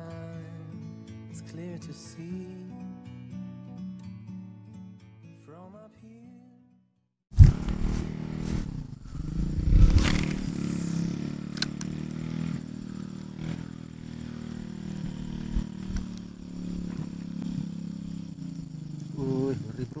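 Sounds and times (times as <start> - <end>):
swish: 7.4 - 11.1
motorcycle engine running: 7.4 - 20.0
sharp click: 11.5 - 11.9, 15.7 - 16.3.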